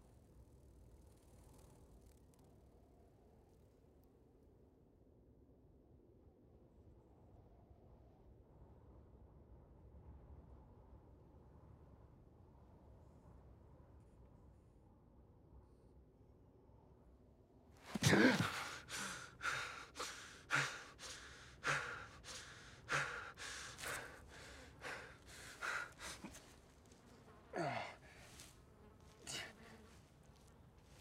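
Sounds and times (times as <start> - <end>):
man groaning: 17.9 - 26.4, 27.5 - 28.2, 29.2 - 29.6
man gasping: 17.9 - 26.5, 27.6 - 28.5, 29.2 - 29.7
heavy ragged breathing: 17.9 - 28.6, 29.2 - 29.8.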